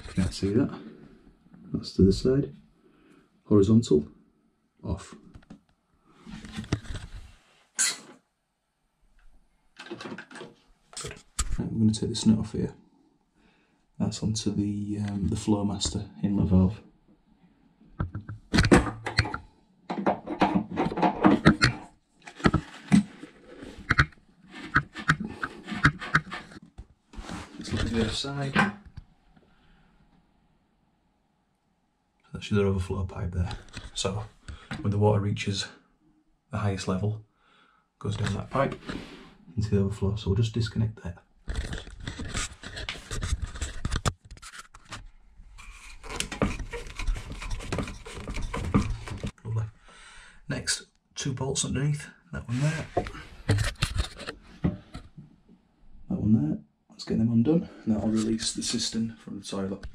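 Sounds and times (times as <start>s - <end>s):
hands scraping under cistern: 18.0s - 28.2s, 38.2s - 39.3s, 41.5s - 45.0s, 45.6s - 49.4s.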